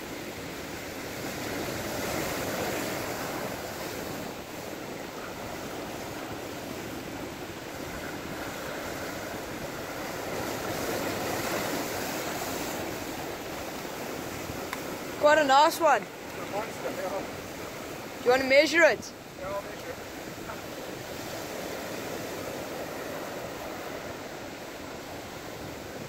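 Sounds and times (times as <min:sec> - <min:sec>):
wind buffeting microphone: 0:00.0 - 0:18.4, 0:19.0 - 0:26.0
surf breaking over rocks: 0:00.0 - 0:26.0.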